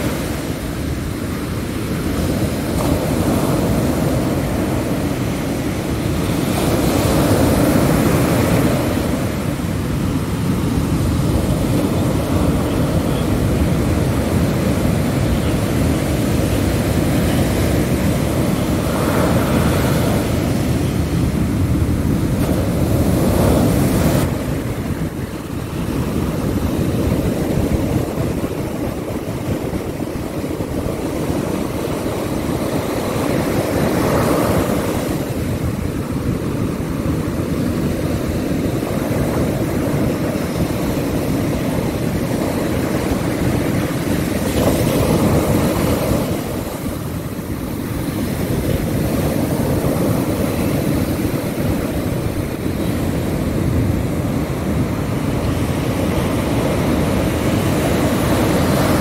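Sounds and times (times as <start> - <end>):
surf breaking on beach: 0.0 - 59.0
wind buffeting microphone: 0.0 - 59.0.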